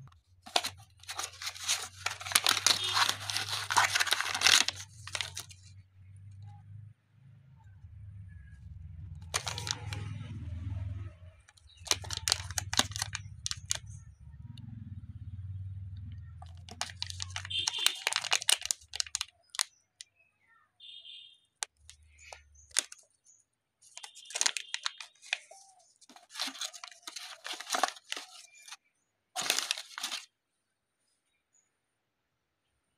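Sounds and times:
plastic bag crinkling: 0:00.0 - 0:05.7, 0:09.3 - 0:10.2, 0:11.6 - 0:13.8, 0:16.4 - 0:19.7, 0:21.6 - 0:23.1, 0:23.8 - 0:28.8, 0:29.4 - 0:30.3.

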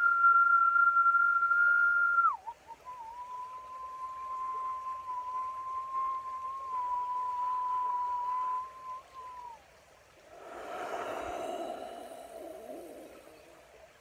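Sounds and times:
man whistling a sliding note: 0:00.0 - 0:09.6
breathy blow through lips: 0:10.3 - 0:13.8.

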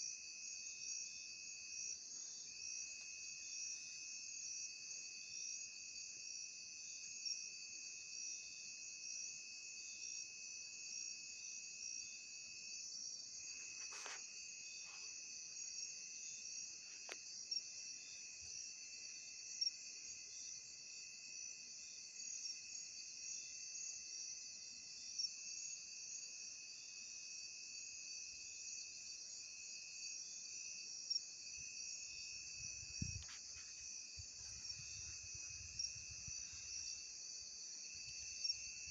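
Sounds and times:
crickets trilling: 0:11.9 - 0:38.9.

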